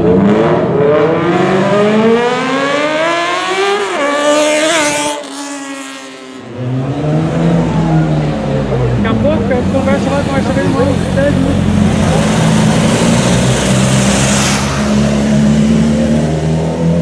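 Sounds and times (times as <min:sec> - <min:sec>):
motorcycle engine revving: 0:00.0 - 0:17.0
engine running at low revs: 0:06.4 - 0:17.0.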